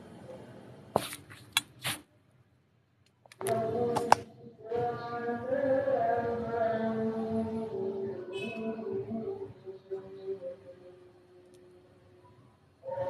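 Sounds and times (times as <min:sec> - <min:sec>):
person chanting: 0:03.3 - 0:12.2, 0:12.8 - 0:13.0.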